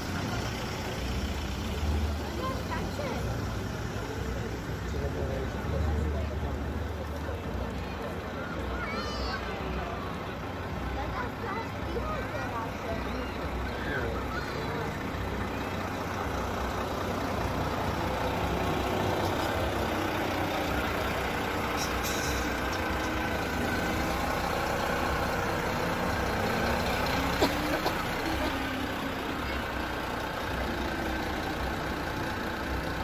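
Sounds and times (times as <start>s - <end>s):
heavy diesel truck engines: 0.0s - 33.0s
short hiss: 21.7s - 22.8s.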